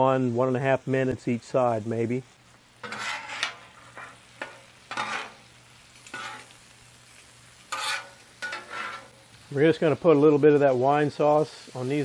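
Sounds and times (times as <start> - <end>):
scallops sizzling in butter: 0.8 - 12.0
metal spatula scraping griddle: 2.8 - 9.4.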